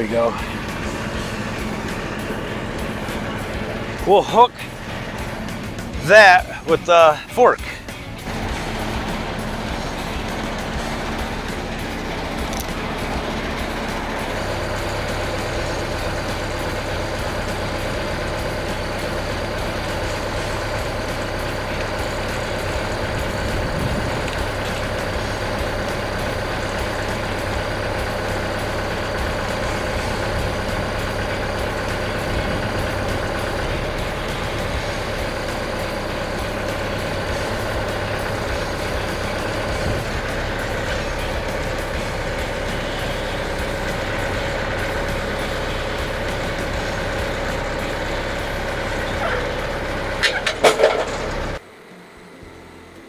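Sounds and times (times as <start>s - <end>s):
tractor engine running: 0.0s - 53.0s
hum with high thin tone: 51.6s - 53.0s.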